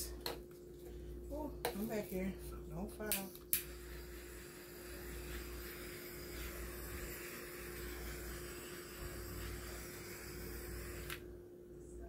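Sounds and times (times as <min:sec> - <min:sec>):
butane torch hissing: 0:03.6 - 0:11.2.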